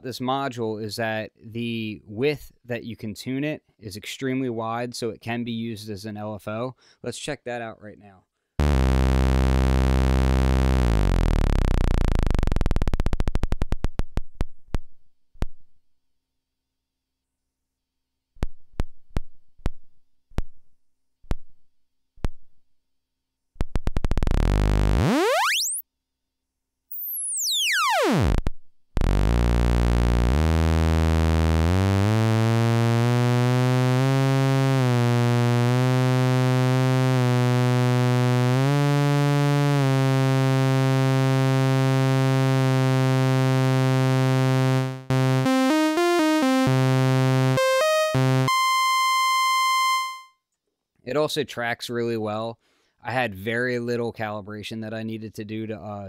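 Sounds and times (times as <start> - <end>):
synthesizer oscillator sweeping: 8.6 - 13.0, 24.1 - 25.8, 26.9 - 28.4, 29.0 - 50.2.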